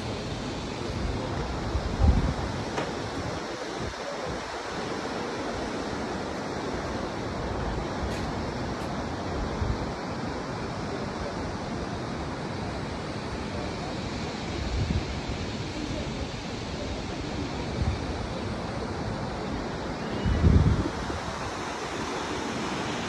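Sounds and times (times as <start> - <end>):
wind buffeting microphone: 0.9 - 4.5, 20.2 - 21.7.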